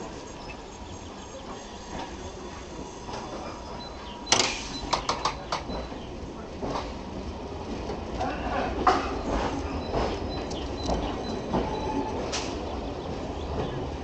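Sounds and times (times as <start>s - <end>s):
train humming: 0.0s - 14.0s
sliding doors slamming shut: 4.3s - 5.8s, 11.6s - 12.8s.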